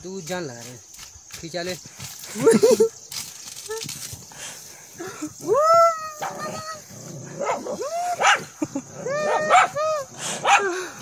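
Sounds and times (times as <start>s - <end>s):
dog barking and yelping: 6.2s - 10.8s.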